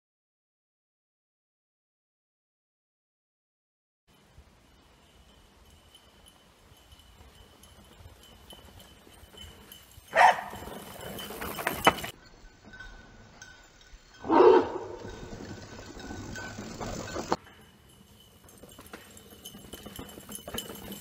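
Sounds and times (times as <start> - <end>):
mountain bike rolling on dirt: 4.1 - 21.0
dog barking: 10.1 - 10.6, 14.2 - 15.0.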